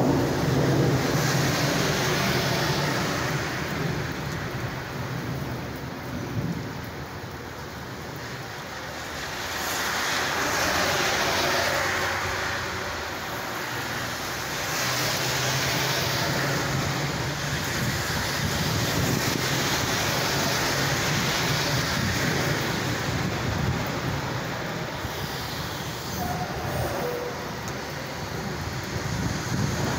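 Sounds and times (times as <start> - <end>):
rolling thunder: 0.0 - 7.1, 17.1 - 25.1, 26.2 - 29.9
heavy rain: 0.0 - 29.9.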